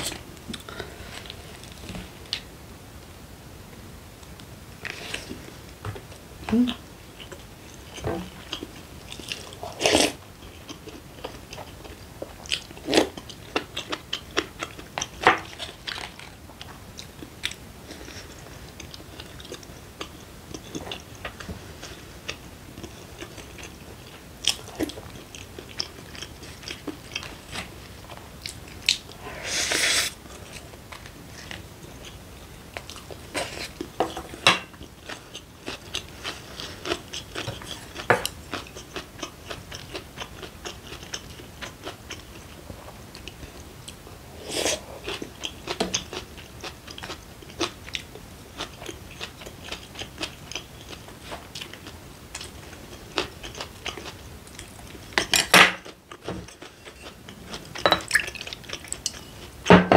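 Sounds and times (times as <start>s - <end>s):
breathy noise: 0.5s - 1.8s
person chewing food: 4.8s - 59.6s.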